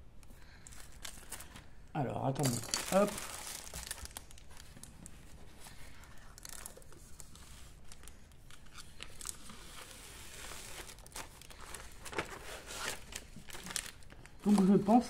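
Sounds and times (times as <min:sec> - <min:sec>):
plastic film peeling and crinkling: 0:00.6 - 0:01.8, 0:02.7 - 0:15.0.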